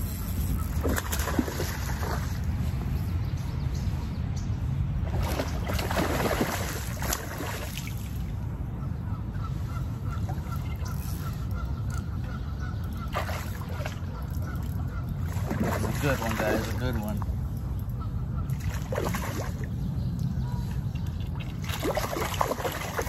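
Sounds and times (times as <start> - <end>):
steady low rumble: 0.0 - 15.8, 17.1 - 22.7
waterfowl honking: 8.8 - 16.6.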